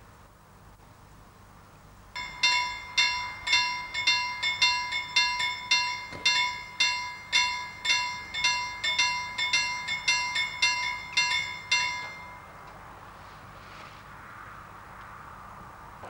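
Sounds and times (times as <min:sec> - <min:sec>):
level-crossing warning bell: 0:02.2 - 0:12.9.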